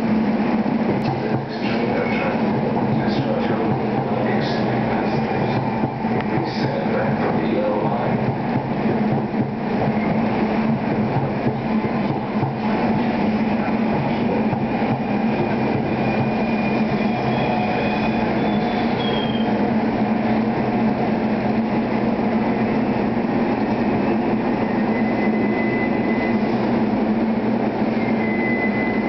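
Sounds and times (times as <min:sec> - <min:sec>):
electric train humming: 0:00.0 - 0:29.0
faint high squeals: 0:15.9 - 0:19.6, 0:24.6 - 0:26.6, 0:27.9 - 0:29.0.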